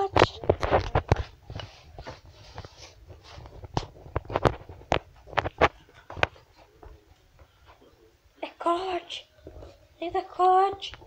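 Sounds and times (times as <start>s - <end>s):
faint rustling: 0.0s - 8.2s.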